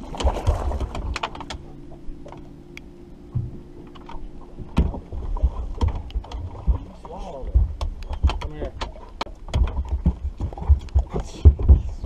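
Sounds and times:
steady low hum: 0.0s - 12.0s
dog paws thumping on boat deck: 4.6s - 12.0s.

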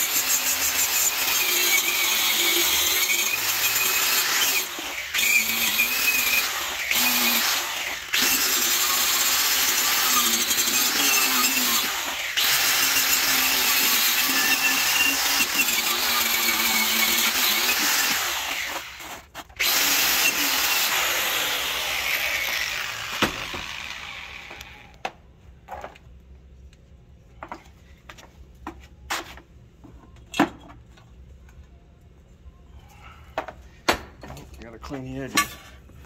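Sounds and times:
angle grinder on steel: 0.0s - 25.0s.

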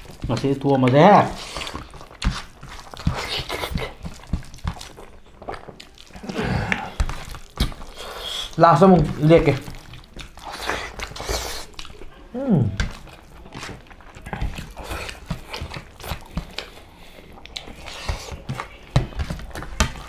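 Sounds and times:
people chewing food: 0.0s - 20.0s
person humming: 12.3s - 12.8s.

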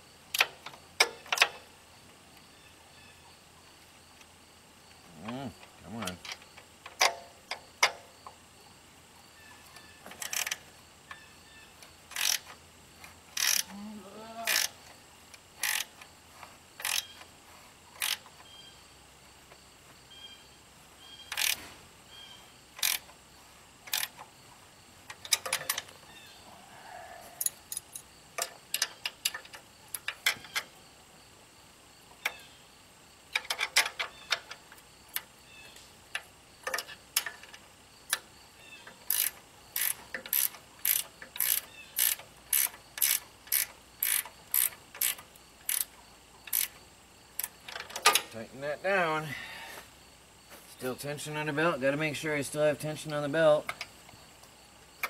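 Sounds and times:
ratchet wrench clicking: 10.1s - 11.2s, 12.1s - 12.6s, 13.3s - 13.7s, 14.4s - 14.9s, 15.6s - 16.1s, 16.8s - 17.3s, 18.0s - 18.3s, 21.3s - 21.6s, 22.8s - 23.2s, 23.9s - 24.3s, 36.1s - 46.8s.

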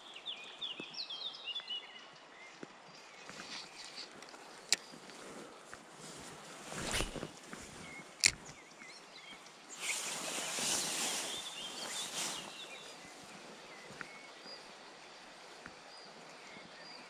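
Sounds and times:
fleece sleeve rustling: 3.3s - 8.5s
bird chirps: 11.1s - 14.7s.

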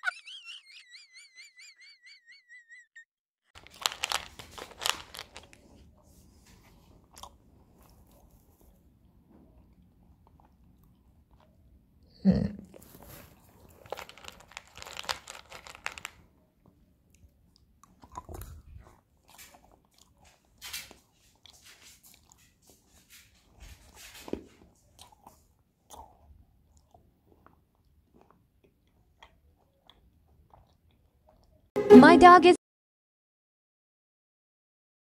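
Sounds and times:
crunchy chewing: 6.6s - 11.7s, 12.7s - 16.3s, 17.1s - 31.7s.

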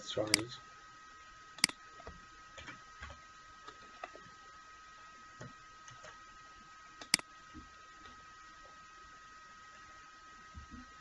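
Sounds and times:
faint high-pitched whine: 0.0s - 11.0s
computer mouse click: 1.6s - 1.8s, 7.0s - 7.3s.

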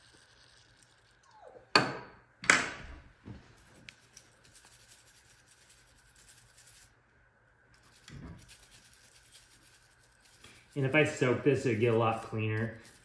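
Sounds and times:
scratching and rubbing by hand: 3.5s - 7.0s, 7.8s - 13.0s.

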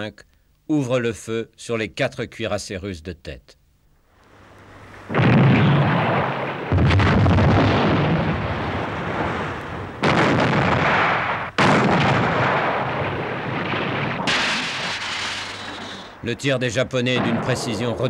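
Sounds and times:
naval gunfire blasts: 5.1s - 18.0s.

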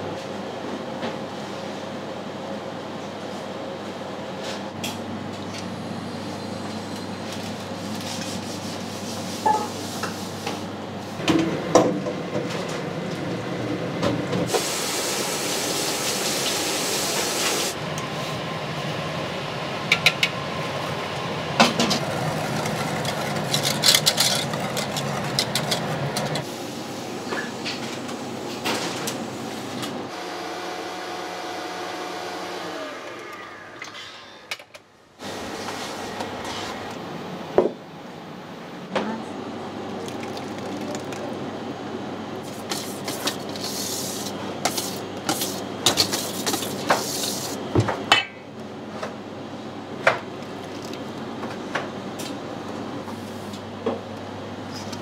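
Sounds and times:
machine hum: 10.7s - 28.5s
hiss: 14.5s - 17.8s
utensils clinking and knocking: 22.6s - 26.4s.

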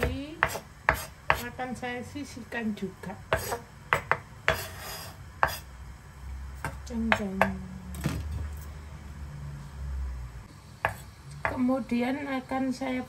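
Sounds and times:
knife scraping cutting board: 0.4s - 1.5s, 3.3s - 3.6s, 4.5s - 5.7s.

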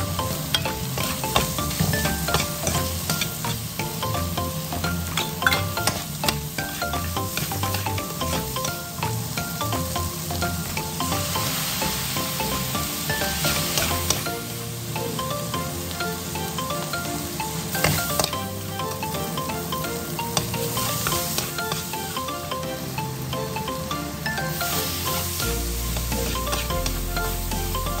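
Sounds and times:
food sizzling in hot oil: 0.0s - 28.0s
metal spatula scraping a wok: 0.3s - 3.8s, 24.6s - 27.4s.

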